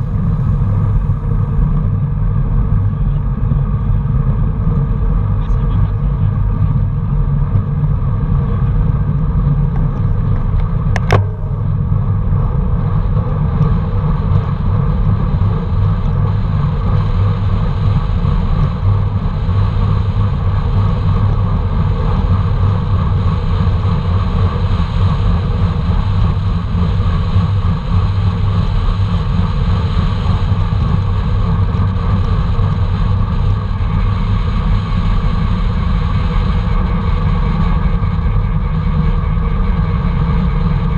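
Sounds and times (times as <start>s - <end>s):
tyre road noise: 0.0s - 40.9s
sharp click: 11.0s - 11.6s.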